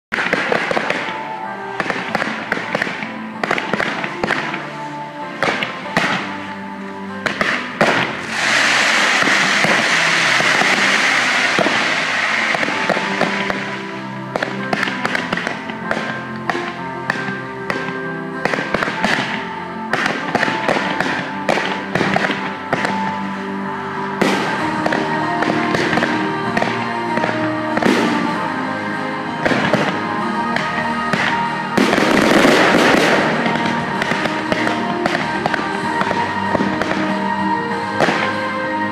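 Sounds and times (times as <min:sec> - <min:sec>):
fireworks banging: 0:00.1 - 0:23.3, 0:24.2 - 0:38.4
fireworks crackling: 0:00.1 - 0:38.9
music with steady tones: 0:00.1 - 0:38.9
fireworks shells banging: 0:07.3 - 0:17.9, 0:29.5 - 0:35.6.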